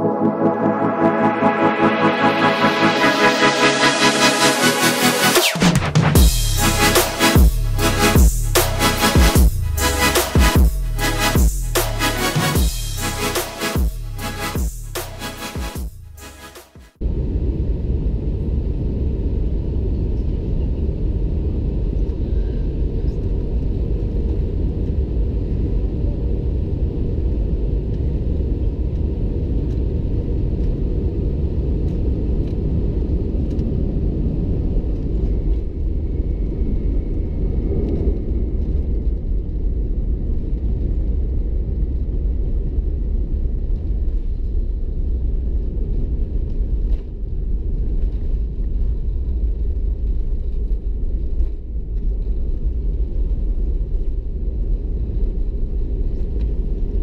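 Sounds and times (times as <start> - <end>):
airplane cabin engine rumble: 17.0 - 57.0.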